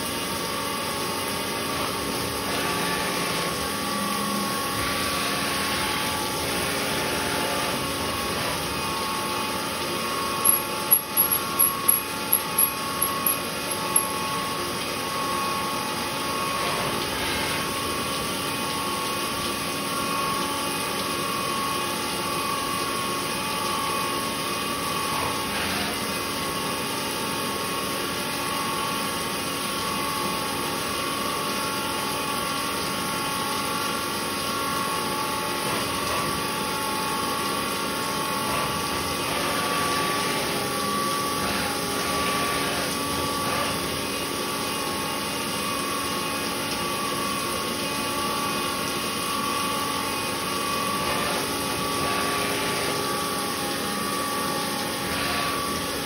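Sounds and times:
milling spindle whine: 2.4 - 17.9.

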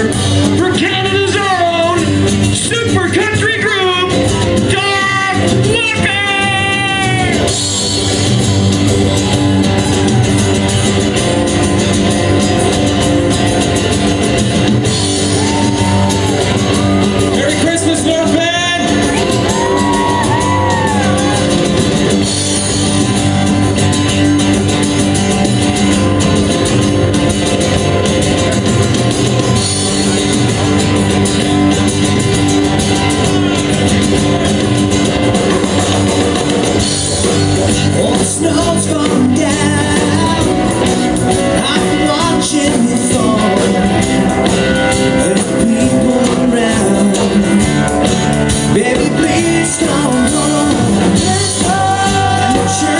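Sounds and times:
bass guitar: 0.0 - 52.9
drums: 0.0 - 52.9
electric guitars: 0.0 - 52.9
person singing: 4.7 - 7.5, 37.9 - 52.9.

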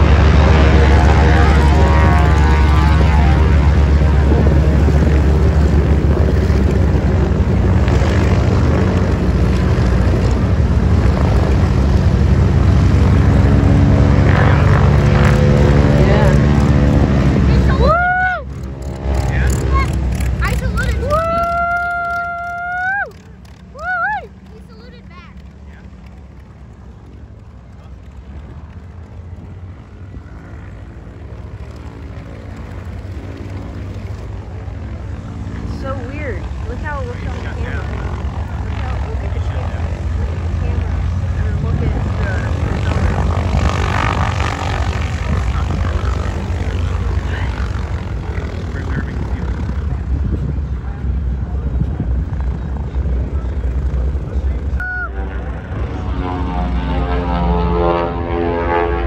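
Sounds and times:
propeller plane engines droning: 0.0 - 59.0.

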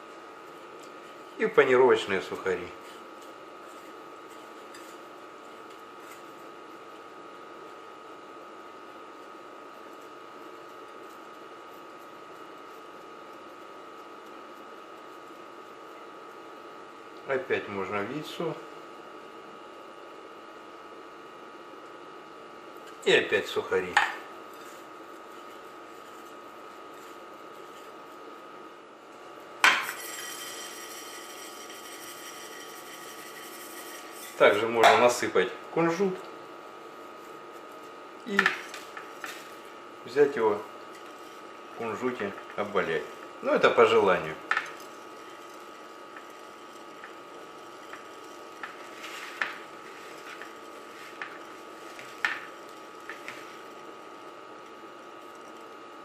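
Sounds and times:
faint steady hum: 0.0 - 56.0
metallic ring: 29.8 - 34.4.

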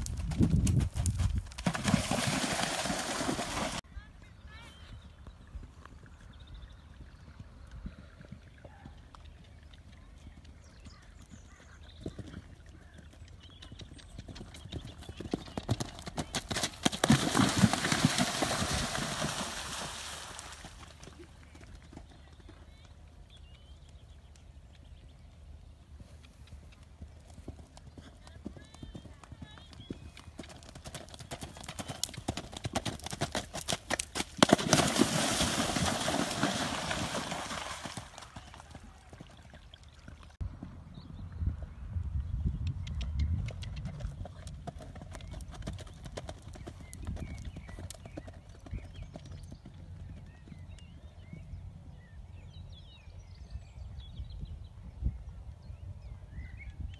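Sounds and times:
pony hooves cantering: 0.0 - 3.8, 26.0 - 40.9
hooves cantering on gravel: 0.0 - 41.0
pony splashing through water: 1.6 - 3.8, 17.0 - 20.9, 34.4 - 38.7.

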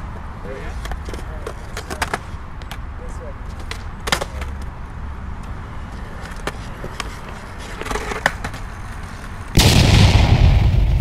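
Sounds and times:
skateboard wheels rolling on concrete: 0.0 - 9.6
skateboard clacks: 0.8 - 2.9, 3.5 - 4.7, 5.4 - 9.4.

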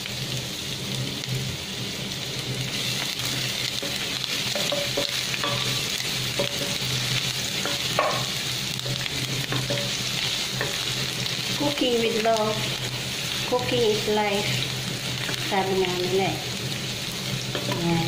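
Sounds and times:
garlic sizzling in hot oil: 0.0 - 18.0.

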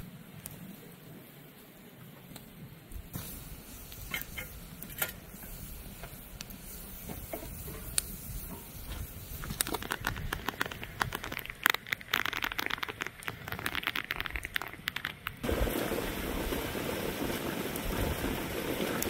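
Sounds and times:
rain pattering: 5.9 - 19.0.

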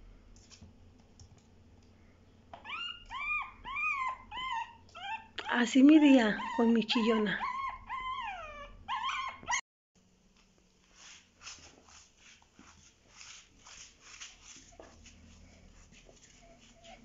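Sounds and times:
puppy whining: 2.6 - 9.6, 16.2 - 17.0.

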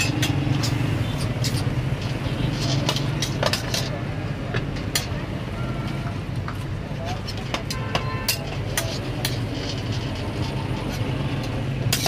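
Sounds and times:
steel scraper on cold plate: 0.0 - 4.0, 7.2 - 12.0.

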